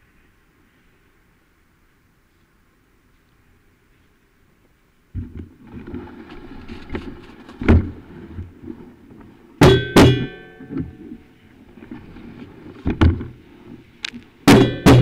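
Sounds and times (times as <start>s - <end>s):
bike rattling over bumpy trail: 5.2s - 15.0s
sharp knock: 9.6s - 10.4s, 14.5s - 15.0s
metallic clanks with ringing: 9.6s - 11.0s.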